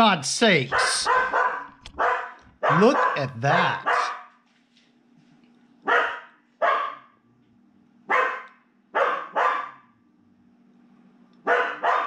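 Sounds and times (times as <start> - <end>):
dog barking: 0.7 - 4.3, 5.9 - 7.2, 8.1 - 9.9, 11.4 - 12.0.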